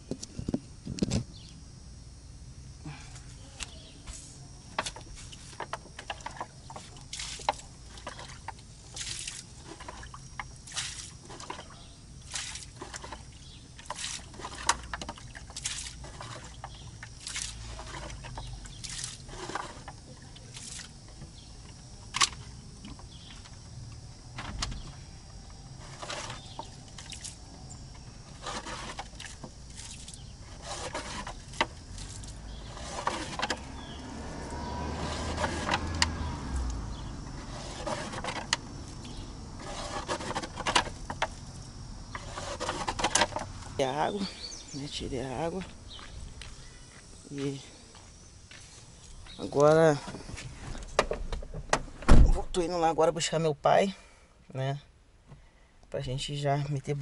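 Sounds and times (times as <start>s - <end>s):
water splashing and pouring: 6.3s - 20.9s.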